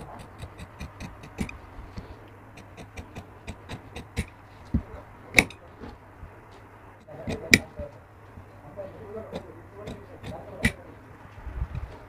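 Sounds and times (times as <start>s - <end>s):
scissors snipping fabric: 0.0s - 1.6s, 9.4s - 10.8s.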